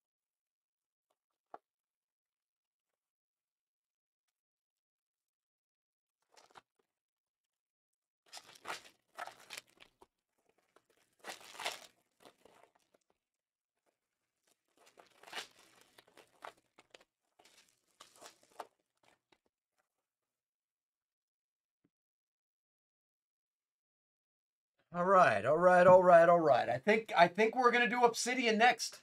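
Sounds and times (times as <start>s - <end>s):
foil wrappers tearing and crinkling: 8.3s - 10.0s, 10.7s - 13.0s, 14.4s - 19.3s.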